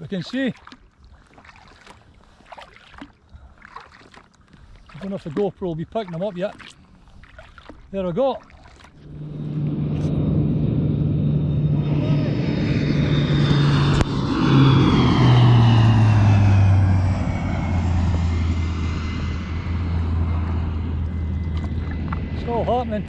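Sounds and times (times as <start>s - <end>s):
propeller drone: 8.9s - 23.0s
high whine falling in pitch: 9.0s - 23.0s.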